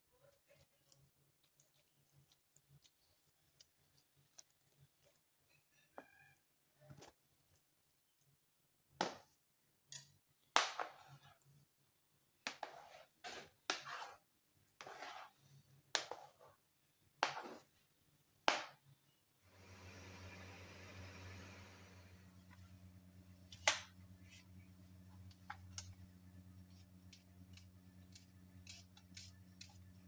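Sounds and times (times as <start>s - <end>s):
grinding stone rasping on board: 12.5s - 14.2s, 14.8s - 15.3s.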